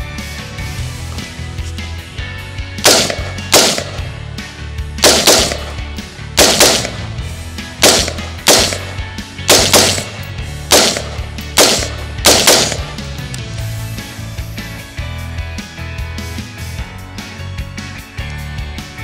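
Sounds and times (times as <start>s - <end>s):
background music: 0.0s - 19.0s
rifle shots: 2.8s - 4.2s, 5.0s - 13.1s.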